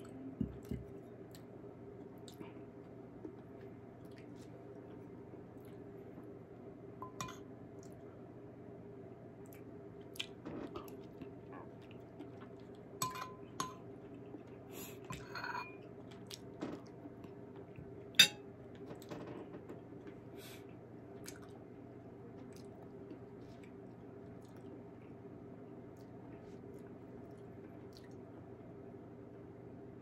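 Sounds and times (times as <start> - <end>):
chewing and mouth noises: 0.0 - 6.0, 9.4 - 15.0, 20.6 - 21.7, 22.3 - 25.2, 25.8 - 28.3
spoon clinking on ceramic bowl: 7.0 - 7.4, 13.0 - 13.8, 15.1 - 15.8, 18.2 - 18.4.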